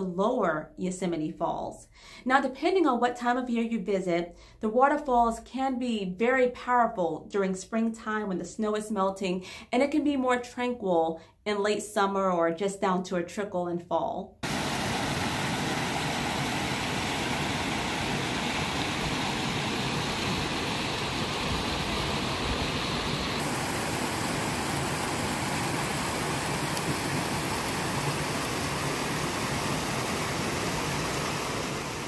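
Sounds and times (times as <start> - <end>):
waterfall rushing: 14.4 - 32.0.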